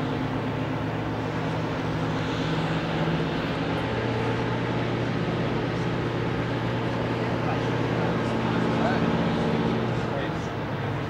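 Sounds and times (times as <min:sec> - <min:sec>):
diesel locomotive idling: 0:00.0 - 0:11.0.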